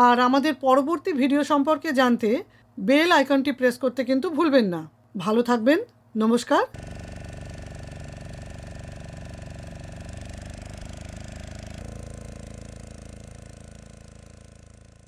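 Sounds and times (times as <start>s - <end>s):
engine running with even throb: 6.8s - 15.0s.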